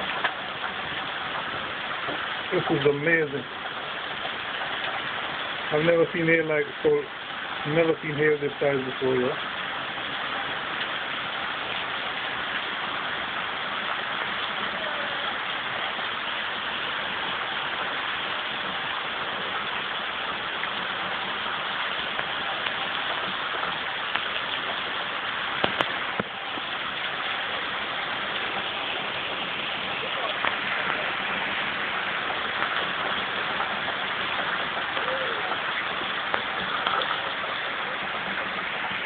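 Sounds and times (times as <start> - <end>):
hailstones striking ground: 0.0 - 9.6, 10.8 - 39.0
heavy rain hiss: 0.0 - 39.0.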